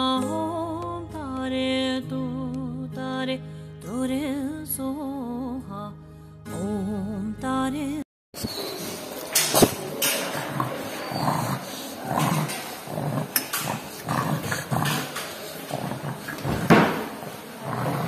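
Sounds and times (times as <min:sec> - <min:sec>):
dog breathing noisily: 0:08.5 - 0:18.0.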